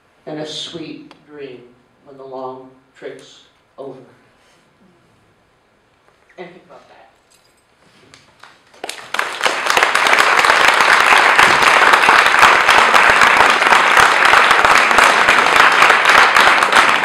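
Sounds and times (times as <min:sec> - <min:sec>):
audience clapping: 0:08.1 - 0:17.0.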